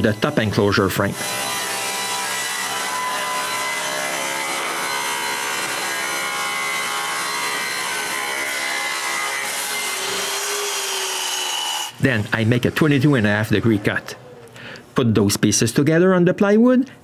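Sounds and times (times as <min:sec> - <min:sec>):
saw motor whine: 0:00.0 - 0:12.0
table saw cutting wood: 0:00.0 - 0:14.0.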